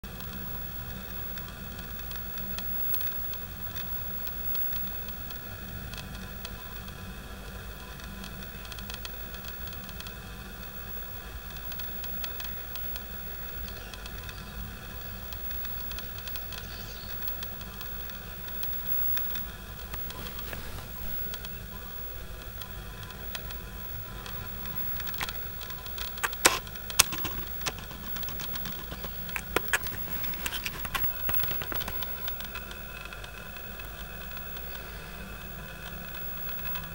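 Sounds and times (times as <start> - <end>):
background hiss: 14.6 - 36.9
camera handling clicks and knocks: 26.1 - 32.0.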